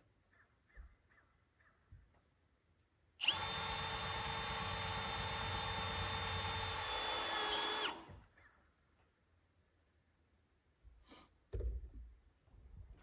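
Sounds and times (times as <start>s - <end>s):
power drill whining: 3.2s - 8.2s.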